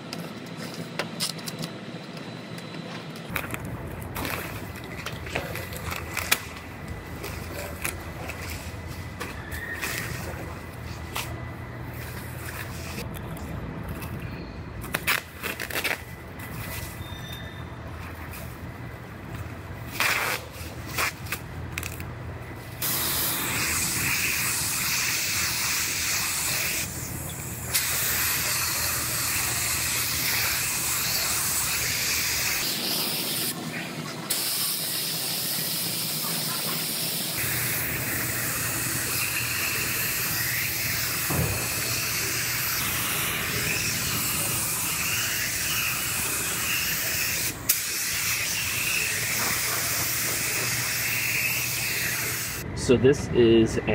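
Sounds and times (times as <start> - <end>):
spray gun hissing: 22.8 - 33.6, 34.3 - 52.6.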